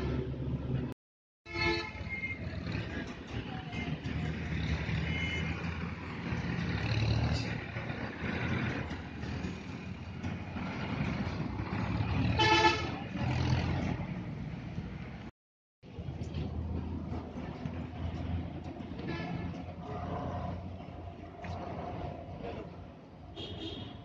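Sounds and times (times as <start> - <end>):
road traffic rumbling: 0.0 - 24.0
vehicle horn honk: 1.5 - 2.2, 12.4 - 13.0, 23.4 - 24.0.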